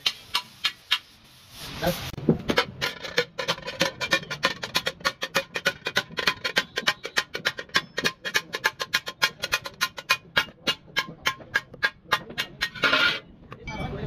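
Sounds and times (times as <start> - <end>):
hammers striking metal on anvil: 3.8 - 12.9.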